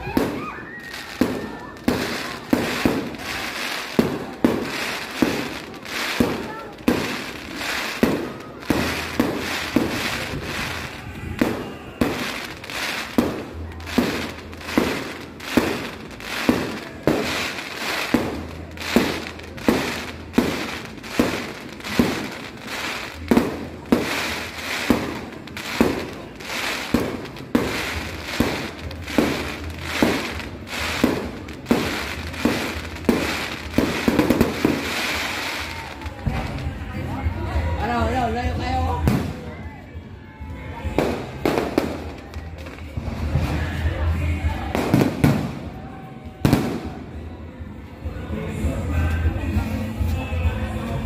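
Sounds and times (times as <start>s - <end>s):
cracking firework reports: 0.0s - 37.0s, 38.2s - 39.6s.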